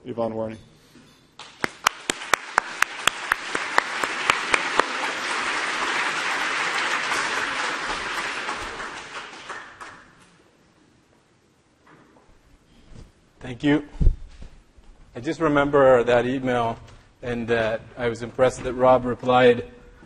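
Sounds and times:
loud close clapper: 1.4s - 5.0s
audience applauding: 1.4s - 10.4s.

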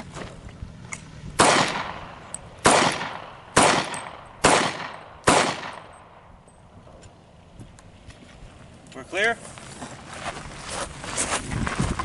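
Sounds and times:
handgun shots with echo: 1.4s - 6.2s.

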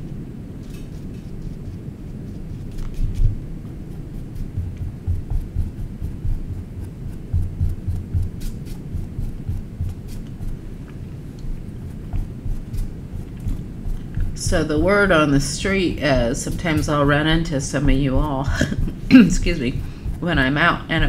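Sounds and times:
low hum: 0.0s - 21.0s
paintbrush scrubbing on canvas: 1.4s - 21.0s.

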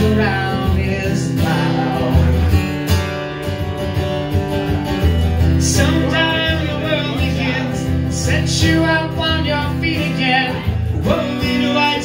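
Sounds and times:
man singing: 0.0s - 3.0s, 5.5s - 12.0s
acoustic guitar strumming chords: 0.0s - 12.0s.

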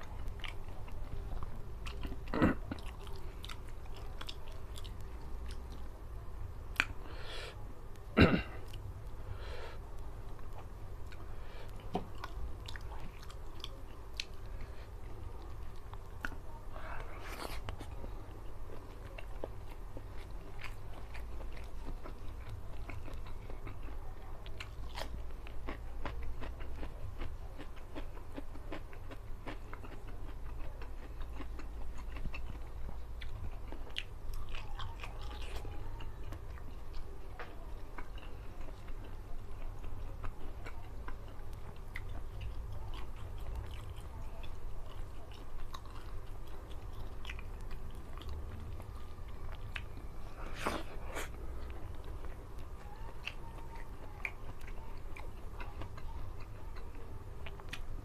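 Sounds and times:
man chewing with mouth clicks: 0.0s - 6.0s, 6.7s - 58.0s
steady low hum: 0.0s - 58.0s.

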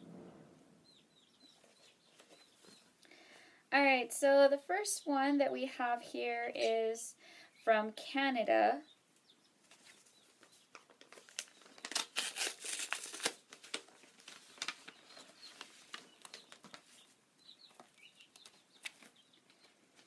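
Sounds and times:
paper crinkling: 10.7s - 17.1s
paper envelope tearing: 11.1s - 14.9s.

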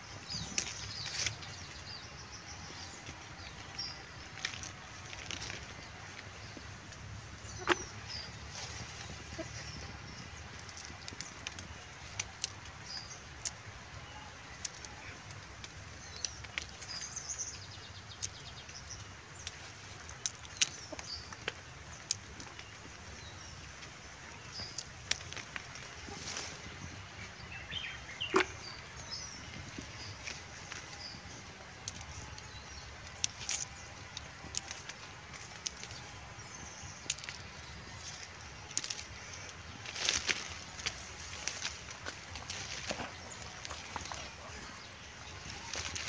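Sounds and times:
leaves brushing: 0.0s - 46.0s
coffee cherries snapping off bushes: 27.7s - 31.2s, 37.0s - 46.0s.

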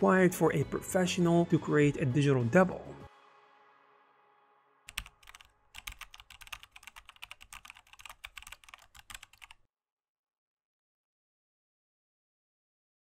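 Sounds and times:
rapid keyboard typing: 4.9s - 9.6s.

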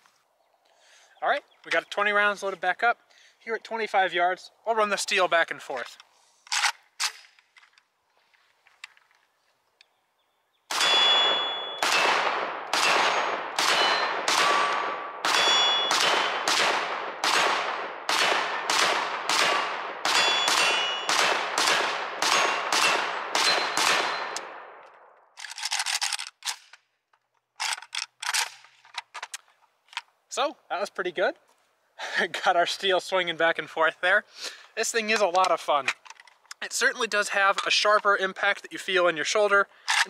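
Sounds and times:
rustle: 0.0s - 10.0s, 25.4s - 32.0s
pistol gunshots: 10.7s - 24.8s
steel targets ringing: 10.8s - 12.1s, 12.8s - 16.4s, 20.1s - 21.1s, 22.3s - 24.4s.

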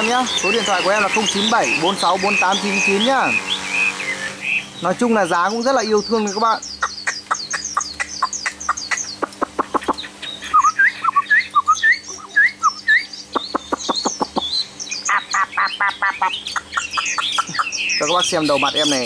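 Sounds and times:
songbird singing: 0.0s - 19.0s.

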